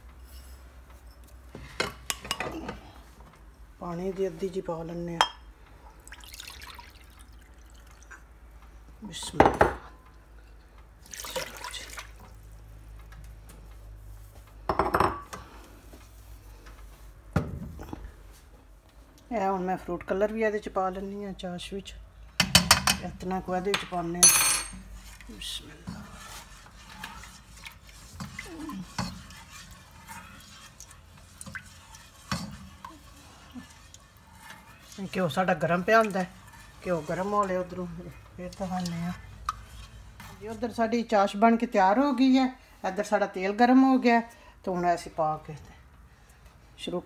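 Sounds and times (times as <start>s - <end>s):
water pouring and splashing: 6.0s - 8.2s, 11.0s - 12.4s, 26.8s - 36.9s
kitchenware clattering: 14.7s - 15.4s, 23.7s - 24.9s
spatula stirring syrup in a pot: 24.7s - 43.2s.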